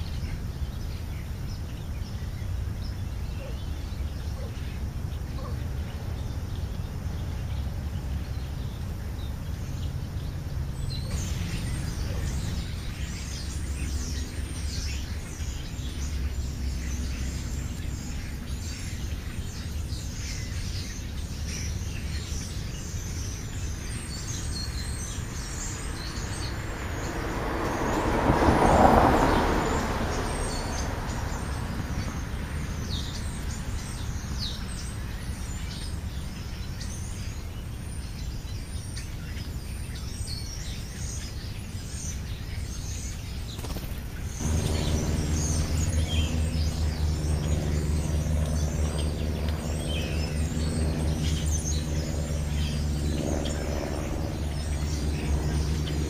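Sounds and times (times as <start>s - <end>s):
small birds chirping: 0.0s - 56.0s
vehicle passing: 11.0s - 18.9s, 23.5s - 34.0s, 44.3s - 56.0s.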